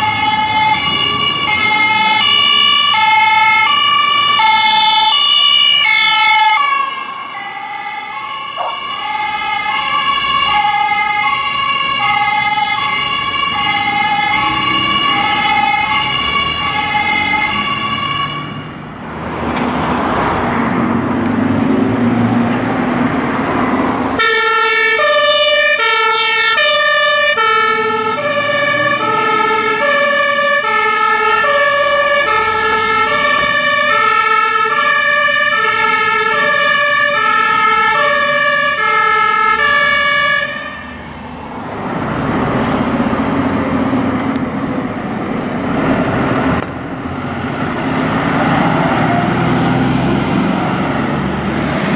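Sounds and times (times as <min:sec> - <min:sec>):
two-tone siren: 0:00.0 - 0:18.8, 0:24.2 - 0:41.0
lower two-tone siren: 0:00.0 - 0:18.9, 0:21.7 - 0:44.4
loud rushing vehicle noise: 0:00.0 - 0:51.9.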